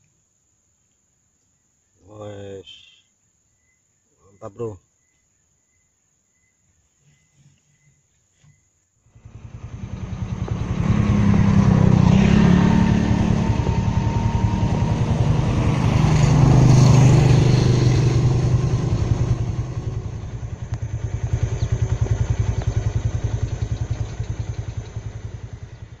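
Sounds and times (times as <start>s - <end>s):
vehicle engine running: 9.1s - 26.0s.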